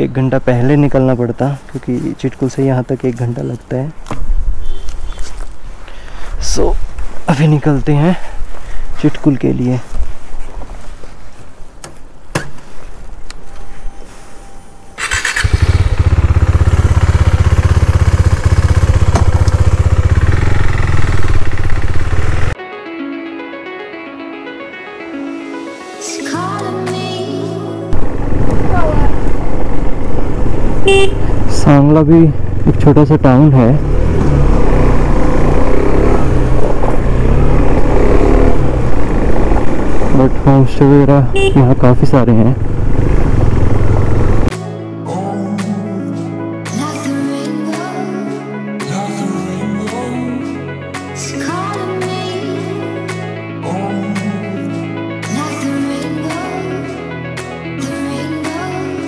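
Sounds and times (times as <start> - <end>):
motorcycle engine starting and idling: 15.0 - 22.6, 28.0 - 41.0, 42.0 - 44.5.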